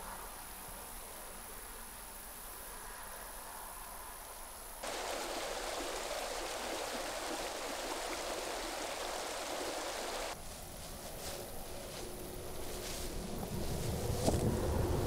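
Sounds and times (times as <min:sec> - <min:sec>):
steady rushing noise: 0:04.8 - 0:10.4.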